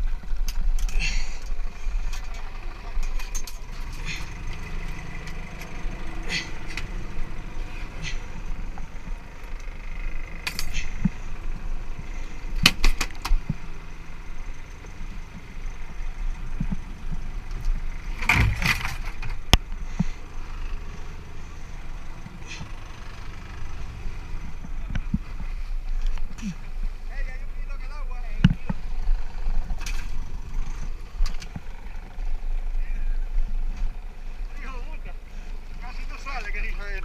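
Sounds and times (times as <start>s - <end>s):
boat engine idling: 0.0s - 37.0s.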